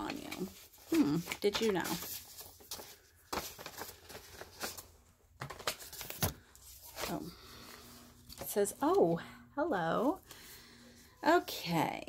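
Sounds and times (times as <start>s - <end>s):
paper rustling and crinkling: 0.0s - 9.0s
paper cards tapping: 1.2s - 4.8s.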